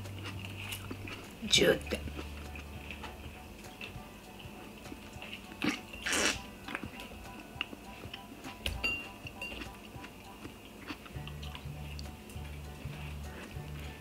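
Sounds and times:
quiet background music: 0.0s - 14.0s
wet slurp: 5.7s - 6.4s.

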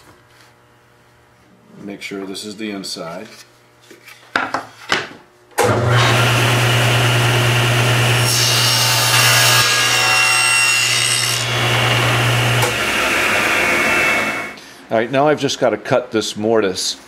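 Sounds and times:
table saw cutting wood: 5.6s - 14.6s.

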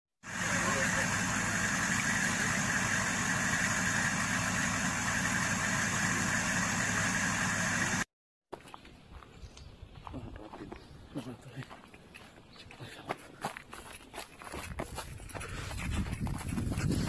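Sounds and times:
vehicle driving at highway speed: 0.2s - 8.1s.

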